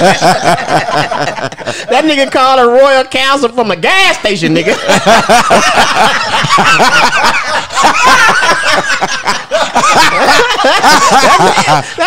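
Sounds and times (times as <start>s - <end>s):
men laughing: 0.0s - 2.2s, 4.6s - 12.0s.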